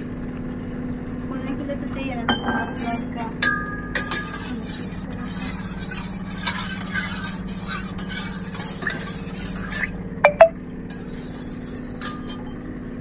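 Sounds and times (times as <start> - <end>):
spoon scraping steel pot: 3.9 - 12.6.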